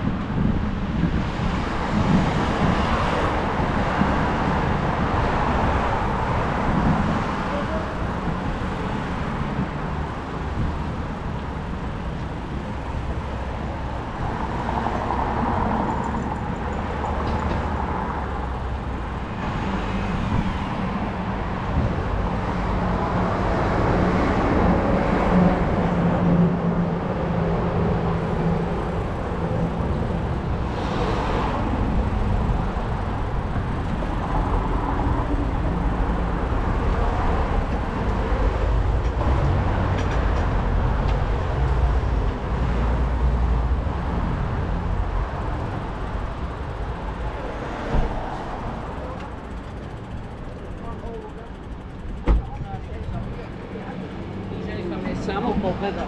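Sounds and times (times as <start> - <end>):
traffic rumble: 0.0 - 56.0
vehicle passing close: 28.0 - 51.2.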